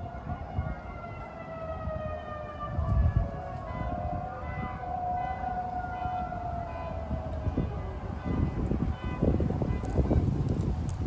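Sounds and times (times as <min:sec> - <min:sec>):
wailing warning siren: 0:00.0 - 0:11.0.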